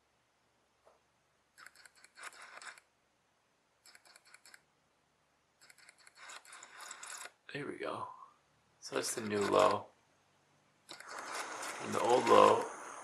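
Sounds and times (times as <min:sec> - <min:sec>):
camera lens focusing clicks: 0:01.6 - 0:02.9, 0:05.6 - 0:07.4, 0:09.2 - 0:09.8, 0:10.9 - 0:12.4.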